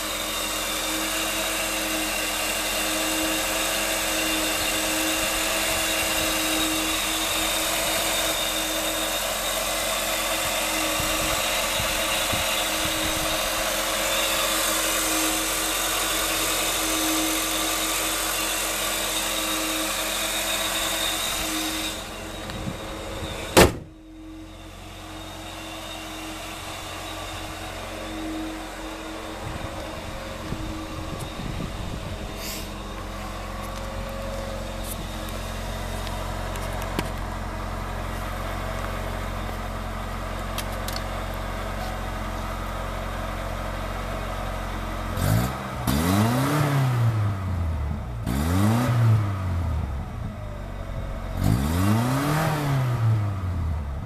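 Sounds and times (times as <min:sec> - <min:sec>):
car engine idling: 0:00.0 - 0:46.0, 0:49.2 - 0:54.0
engine whine: 0:00.0 - 0:54.0
car hood slamming: 0:23.5 - 0:24.0.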